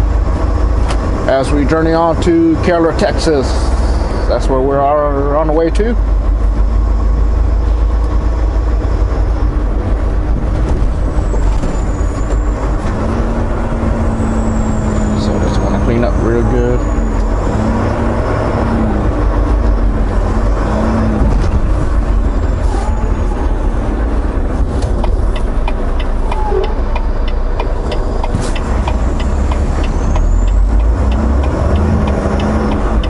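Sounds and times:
truck diesel engine rumble: 0.0 - 33.0
turn signal ticking: 11.1 - 23.1, 23.8 - 33.0.

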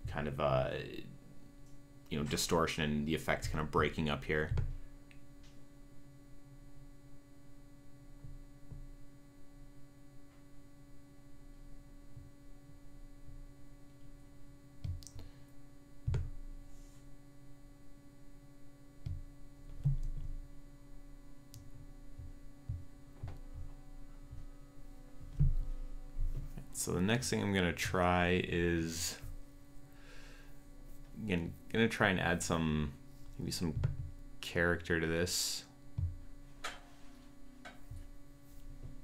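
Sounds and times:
electrical hum: 0.0 - 39.0
low thumps: 21.2 - 26.8, 33.5 - 34.4.

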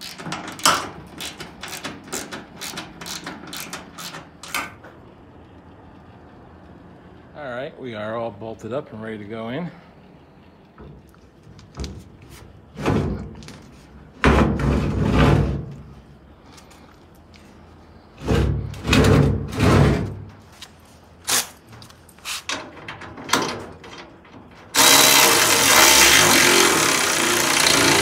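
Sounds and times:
air ratchet running: 0.0 - 4.8, 24.7 - 28.0
metal clunks and bangs: 10.8 - 13.6, 14.2 - 15.9, 18.2 - 20.5, 22.5 - 24.8.

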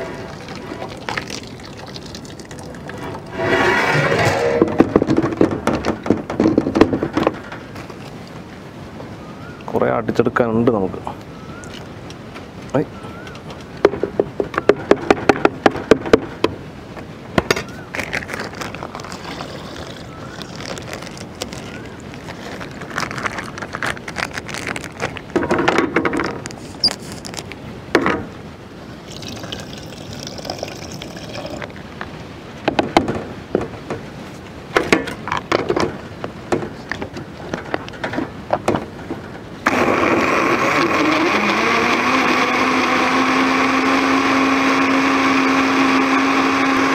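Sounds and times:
scoop scraping: 0.0 - 5.3, 17.6 - 25.3.

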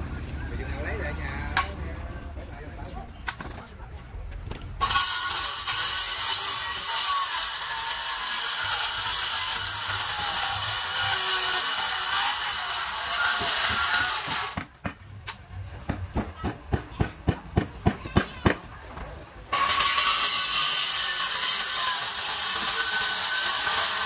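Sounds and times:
power tool cutting wood: 4.8 - 14.7, 19.5 - 24.0.

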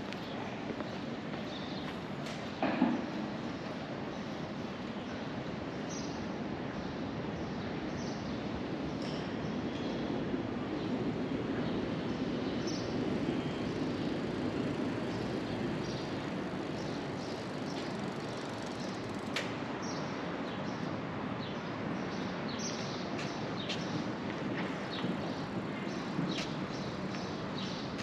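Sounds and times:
distant city traffic rumble: 0.0 - 28.0
small birds chirping: 10.7 - 24.1.

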